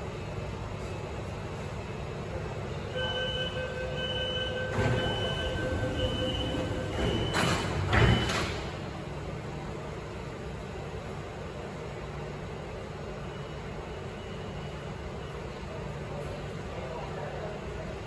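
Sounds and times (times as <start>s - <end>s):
low hum of train: 0.0s - 18.0s
steady warning tone: 2.9s - 8.4s
door-closing warning beeps: 3.0s - 8.8s
train doors sliding shut: 4.4s - 9.1s.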